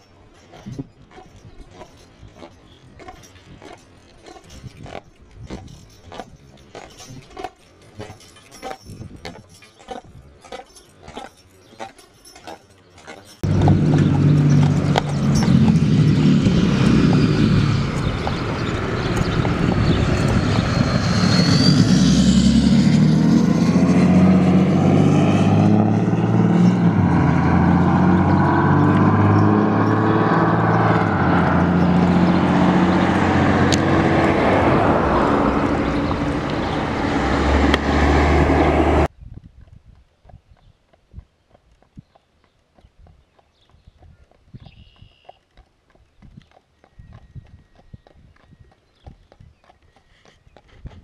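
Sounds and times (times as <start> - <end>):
road traffic: 0.0 - 39.1
vehicles whining by: 13.0 - 39.1.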